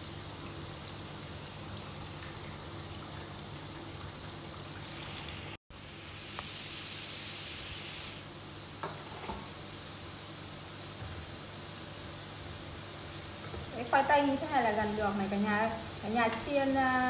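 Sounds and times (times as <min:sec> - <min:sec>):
potatoes sizzling in hot oil: 0:04.2 - 0:17.0.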